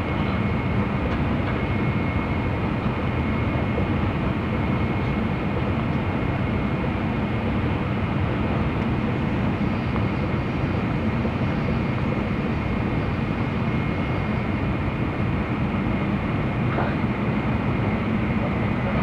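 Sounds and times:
train cabin rumble and rushing: 0:00.0 - 0:19.0
faint high whine: 0:06.1 - 0:19.0.

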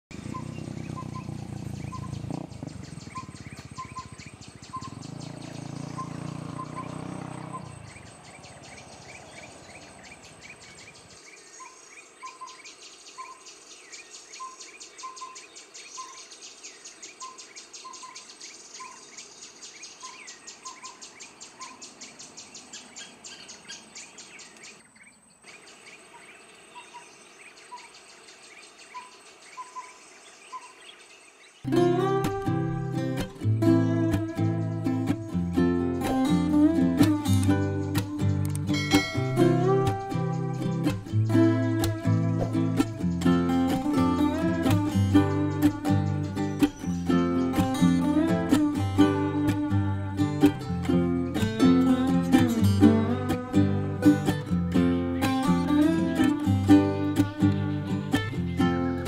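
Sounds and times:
quick bird chirps: 0:00.1 - 0:16.4
whistled bird calls: 0:00.1 - 0:31.1
high insect buzz: 0:00.2 - 0:11.8.

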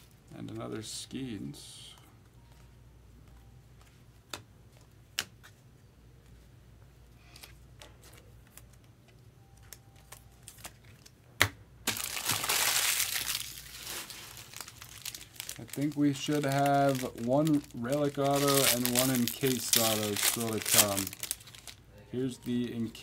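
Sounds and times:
foil wrapper crinkling: 0:11.9 - 0:23.0.

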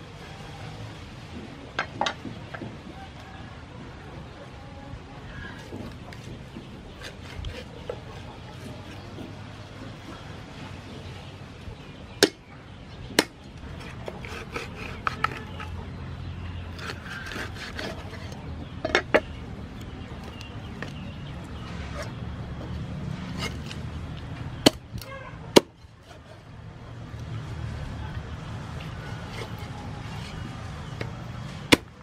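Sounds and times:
cleaver chopping on wooden board: 0:12.2 - 0:12.4, 0:13.1 - 0:15.7, 0:24.6 - 0:25.8, 0:31.0 - 0:32.0.

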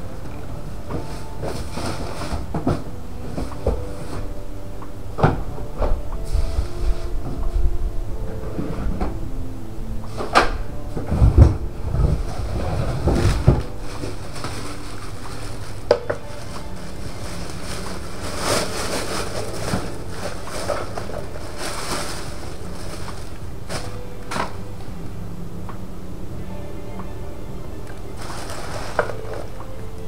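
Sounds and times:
steady background hiss: 0:00.0 - 0:30.0.

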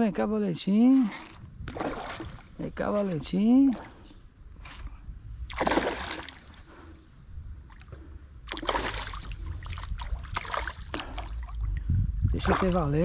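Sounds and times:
fish splashing at water surface: 0:05.5 - 0:06.5, 0:08.5 - 0:11.6.

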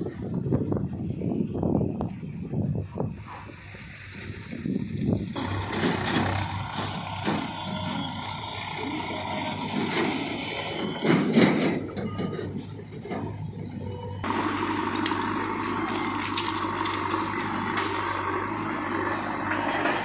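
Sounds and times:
close engine drone: 0:00.0 - 0:20.0
diesel engines running: 0:00.0 - 0:20.0.

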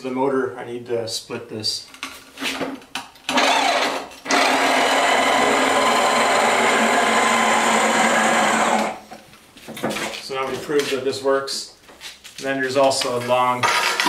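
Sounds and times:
electric motor whine: 0:04.3 - 0:09.0.

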